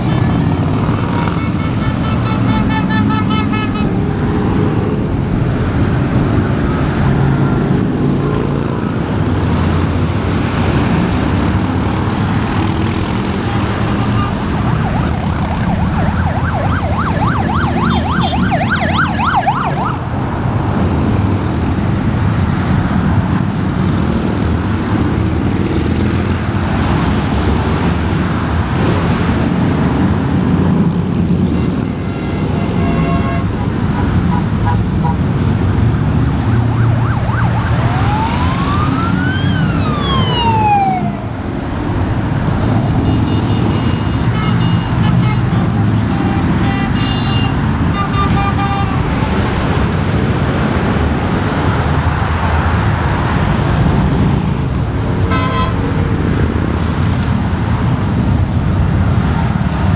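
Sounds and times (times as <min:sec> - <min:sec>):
highway traffic: 0:00.0 - 0:59.9
siren warbling: 0:14.0 - 0:20.1, 0:36.5 - 0:41.4.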